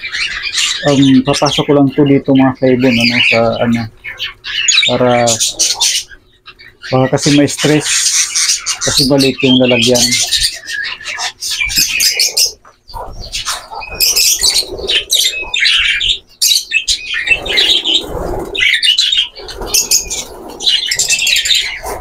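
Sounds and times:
budgerigars chirping and squawking: 0:00.0 - 0:22.0
wings flapping: 0:11.2 - 0:16.2, 0:16.8 - 0:22.0.

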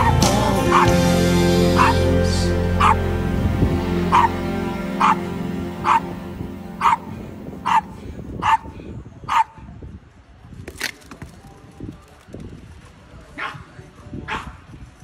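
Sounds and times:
small dog barking: 0:04.1 - 0:04.3, 0:05.0 - 0:05.2, 0:05.8 - 0:06.0, 0:06.8 - 0:08.7, 0:09.3 - 0:09.6, 0:14.3 - 0:14.6.

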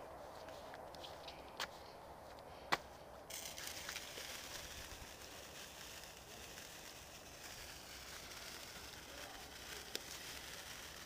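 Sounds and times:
sparkler fizzing hiss: 0:03.3 - 0:11.0.

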